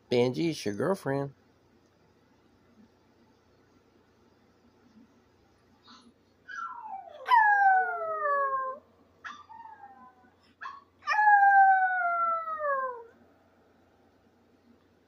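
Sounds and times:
dog yelping: 0:06.4 - 0:13.2
dog howling: 0:06.5 - 0:13.2.

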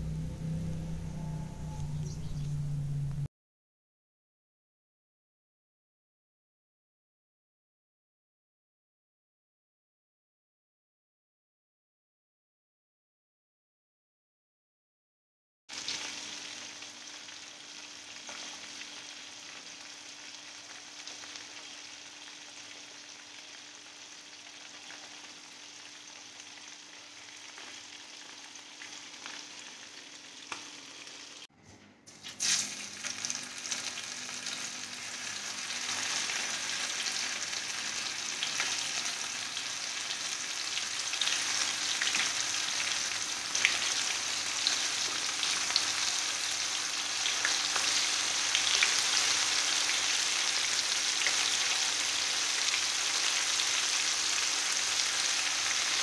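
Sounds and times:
fish frying in hot oil: 0:15.7 - 0:31.4, 0:32.2 - 0:56.0
crackling sizzle of frying fish: 0:15.7 - 0:31.5, 0:32.2 - 0:56.0.

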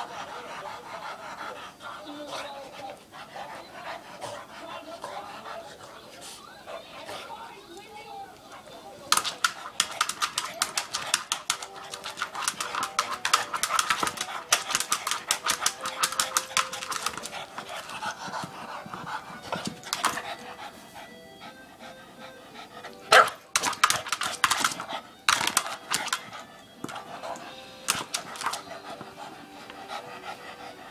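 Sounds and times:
dog panting: 0:00.0 - 0:30.9
clicks and scrapes on plastic ball: 0:09.1 - 0:18.5, 0:23.5 - 0:28.6.

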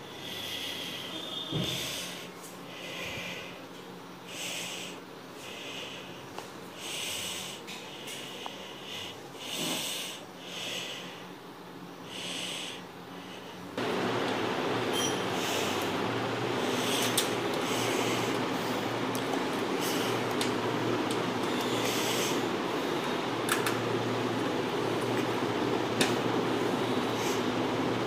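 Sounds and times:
person breathing: 0:00.0 - 0:11.4, 0:12.0 - 0:13.8, 0:15.3 - 0:19.0, 0:21.4 - 0:23.3.

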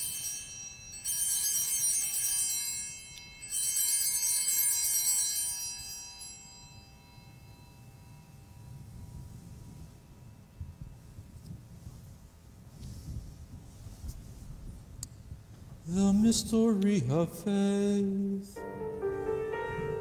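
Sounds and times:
small bells jingling: 0:00.0 - 0:11.4.

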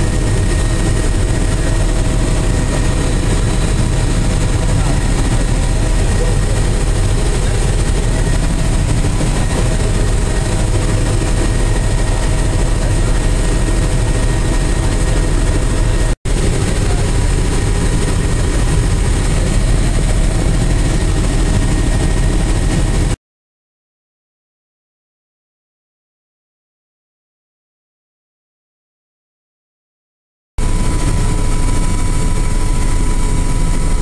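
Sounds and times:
helicopter engine and rotor drone: 0:00.0 - 0:23.2, 0:30.6 - 0:34.0.

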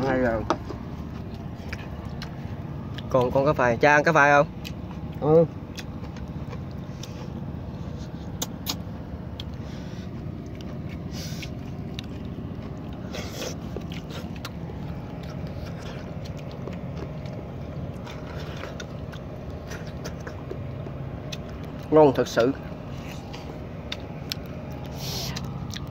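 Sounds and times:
low engine hum: 0:00.0 - 0:25.9.

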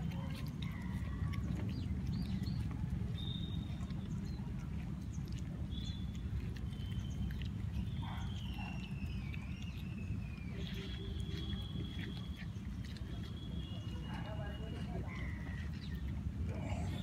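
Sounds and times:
puppy chewing and smacking: 0:00.0 - 0:17.0
steady low rumble: 0:14.7 - 0:17.0.

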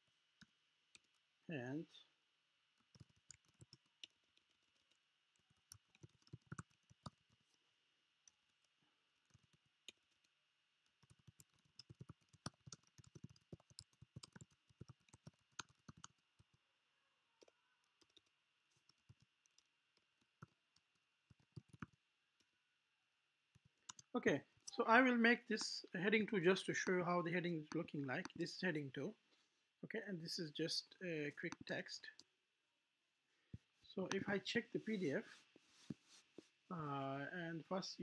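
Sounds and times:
typing on keyboard: 0:02.8 - 0:07.4, 0:09.3 - 0:16.6, 0:17.4 - 0:22.0.

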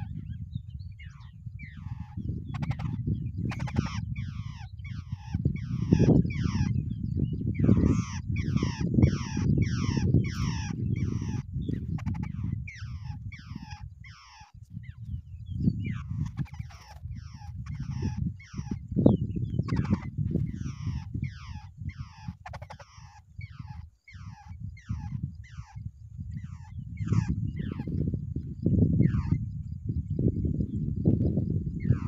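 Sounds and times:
birds calling harshly: 0:00.0 - 0:28.1, 0:28.7 - 0:29.7, 0:31.7 - 0:32.0.

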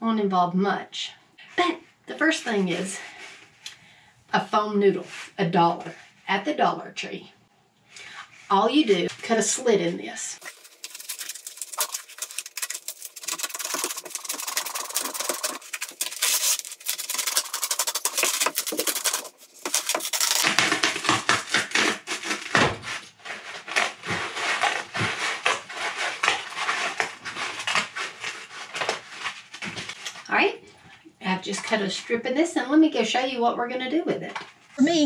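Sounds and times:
knife sawing through foam: 0:10.4 - 0:29.4.

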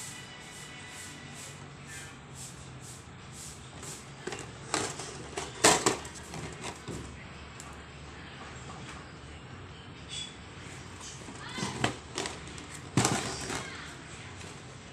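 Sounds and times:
cardboard box rustling: 0:11.3 - 0:13.8.

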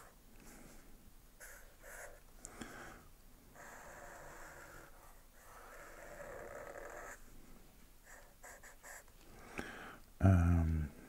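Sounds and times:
marker rubbing on paper: 0:01.4 - 0:02.2, 0:03.6 - 0:07.2, 0:08.0 - 0:09.1.

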